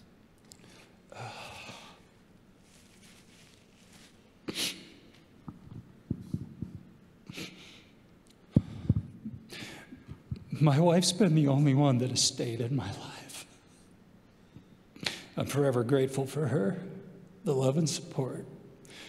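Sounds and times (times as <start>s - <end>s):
man breathing: 0.5s - 2.1s, 7.3s - 10.2s
man sniffing: 4.5s - 5.0s.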